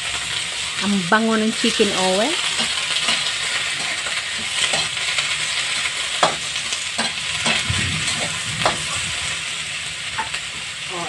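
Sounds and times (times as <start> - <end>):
vegetables sizzling in oil: 0.0 - 11.0
spatula knocking and scraping wok: 2.4 - 9.4, 10.2 - 10.7.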